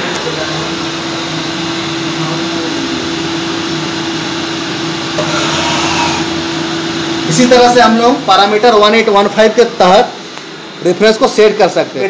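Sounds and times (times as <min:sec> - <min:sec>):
machine whirring and humming: 0:05.0 - 0:07.2.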